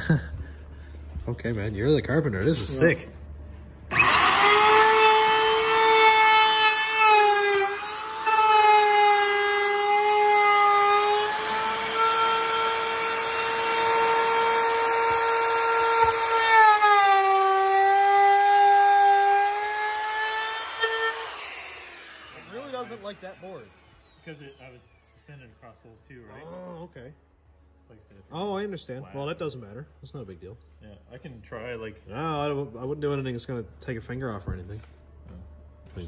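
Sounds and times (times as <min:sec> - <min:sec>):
router whining: 0:03.9 - 0:25.3.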